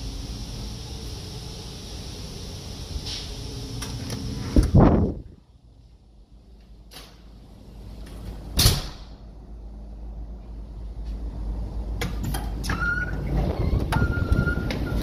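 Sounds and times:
thin steady whistle: 12.7 - 15.0.

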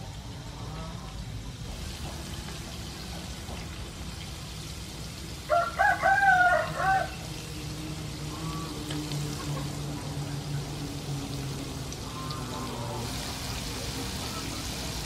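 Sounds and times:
food deep-frying in oil: 0.0 - 15.0
rooster crowing: 5.4 - 7.4.

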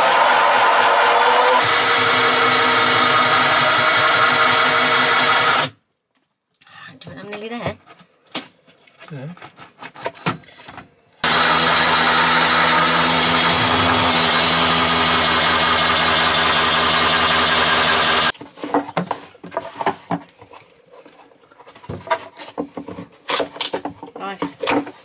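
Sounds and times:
electric drill with hole saw cutting: 0.0 - 5.7, 11.2 - 18.3.

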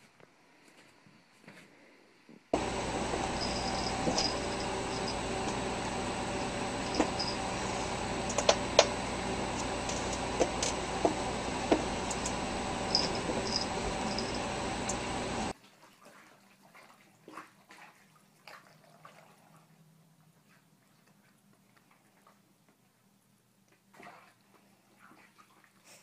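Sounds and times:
room noise hiss and hum: 2.2 - 15.5.

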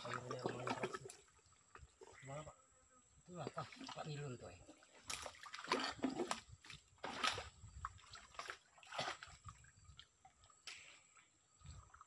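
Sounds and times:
wet splashes in mud: 5.0 - 9.6.

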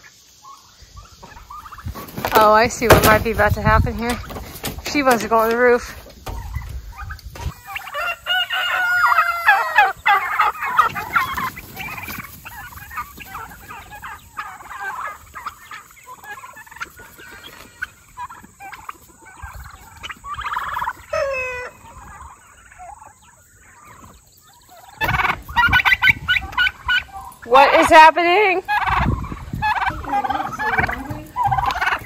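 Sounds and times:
chickens clucking: 0.0 - 32.0
turkeys gobbling: 0.0 - 32.0
rooster crowing: 7.6 - 10.5, 21.1 - 21.8.

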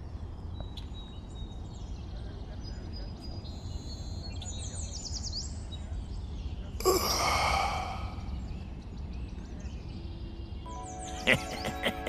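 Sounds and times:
person sighing: 6.8 - 8.4.

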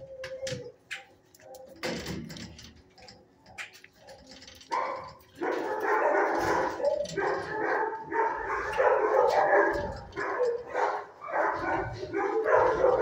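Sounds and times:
dogs barking: 1.4 - 2.0, 3.4 - 13.0.

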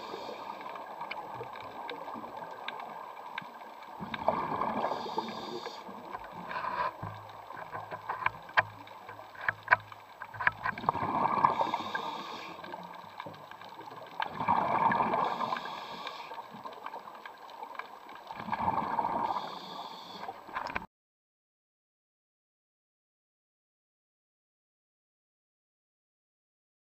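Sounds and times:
exhaled bubbles rushing underwater: 0.0 - 6.4, 10.5 - 16.0, 18.2 - 19.5.

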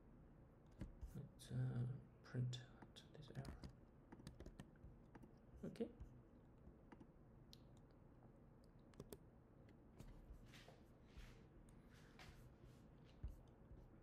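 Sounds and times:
faint keyboard clicks: 2.7 - 5.4, 8.6 - 10.2.

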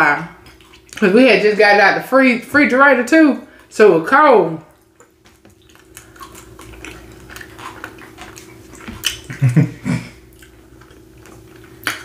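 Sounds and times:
faint hum: 0.0 - 12.0
people chewing: 4.8 - 12.0.

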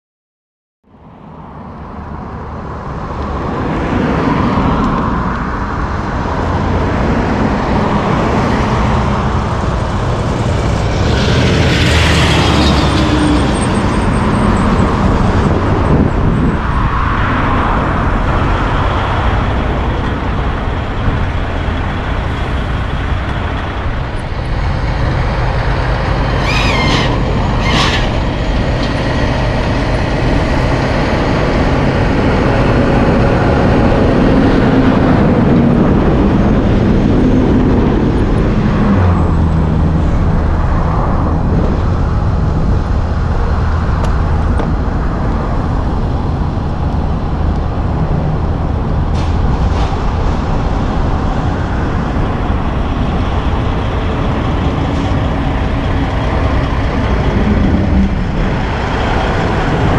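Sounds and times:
diesel truck engines rumbling: 0.9 - 59.9
high hisses or squeals: 26.4 - 28.2.

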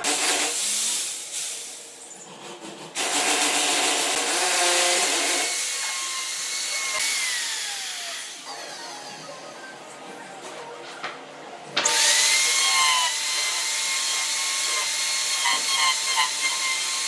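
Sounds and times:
electric router cutting wood: 3.0 - 8.6, 11.9 - 17.0.

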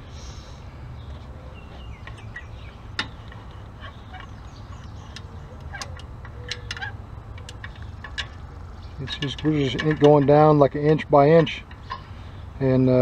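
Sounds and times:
birds chirping: 0.0 - 13.0
ratchet clicking: 2.0 - 12.2.

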